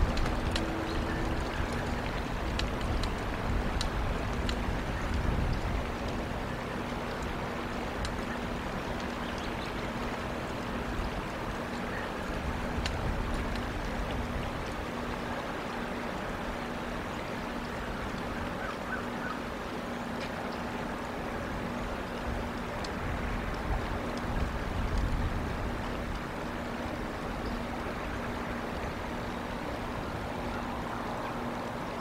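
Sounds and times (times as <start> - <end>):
faint ticks: 0.0 - 16.6, 20.0 - 29.1
faint steady hum: 0.0 - 32.0
low rumble and hiss: 0.0 - 32.0.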